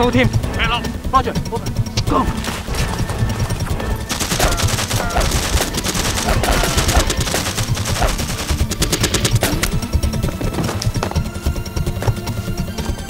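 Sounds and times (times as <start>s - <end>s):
rapid automatic gunfire: 2.4s - 11.4s.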